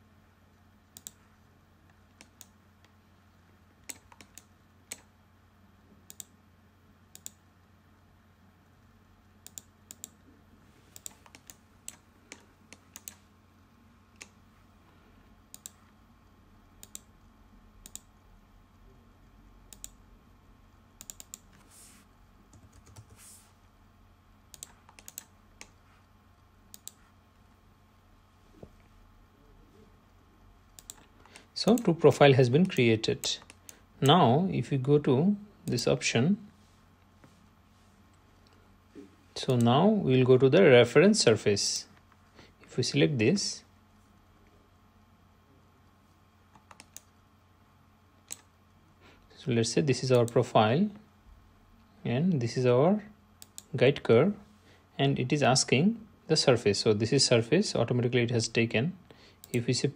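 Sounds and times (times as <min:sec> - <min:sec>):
low steady hum: 0:00.0 - 0:59.9
computer mouse and keyboard clicks: 0:03.8 - 0:05.1, 0:10.9 - 0:13.2, 0:15.5 - 0:15.9, 0:22.5 - 0:23.3, 0:24.5 - 0:25.8, 0:26.7 - 0:27.0, 0:30.8 - 0:31.1, 0:46.5 - 0:47.1, 0:48.3 - 0:48.5.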